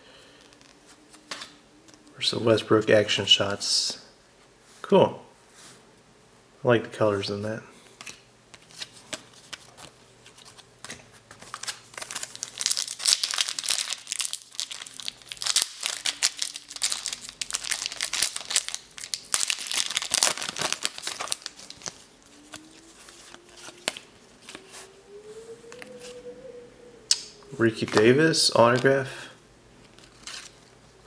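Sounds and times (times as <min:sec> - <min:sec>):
cards rustling: 0:08.0 - 0:24.9, 0:29.8 - 0:30.8
plastic wrapper crackling: 0:11.4 - 0:24.6.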